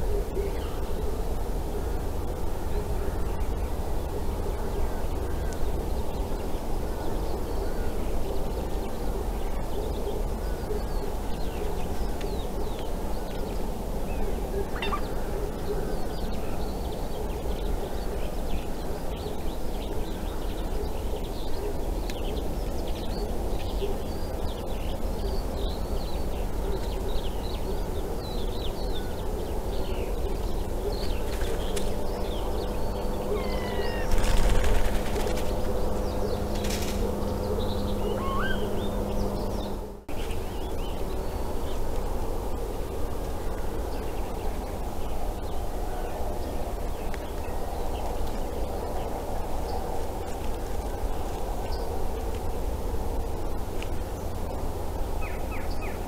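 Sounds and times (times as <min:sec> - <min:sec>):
steady low hum: 0:00.0 - 0:56.0
birds chirping and whistling: 0:31.0 - 0:34.6, 0:35.9 - 0:39.8
harsh bird call: 0:33.3 - 0:34.4, 0:38.0 - 0:38.8.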